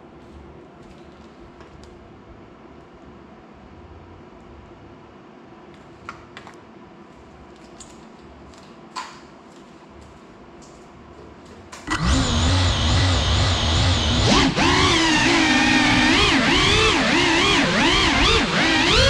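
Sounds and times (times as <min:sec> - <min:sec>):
drone motors whining: 0:11.9 - 0:19.0.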